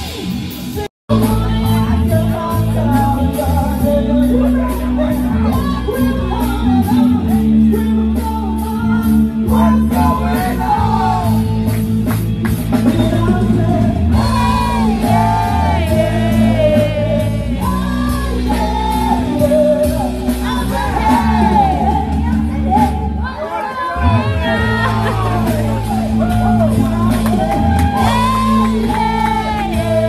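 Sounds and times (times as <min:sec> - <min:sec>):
person singing: 0:00.0 - 0:11.5, 0:12.7 - 0:23.4, 0:24.0 - 0:30.0
bass line: 0:00.0 - 0:30.0
drum beat: 0:09.6 - 0:23.2, 0:24.2 - 0:30.0.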